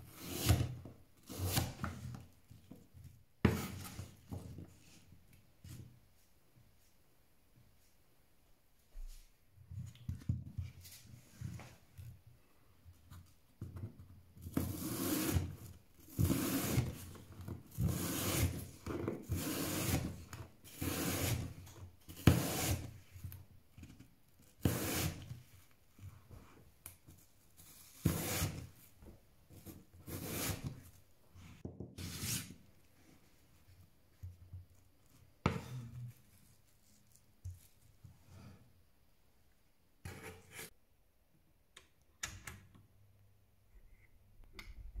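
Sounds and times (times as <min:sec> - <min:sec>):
knife slicing apple on board: 0:22.2 - 0:22.9.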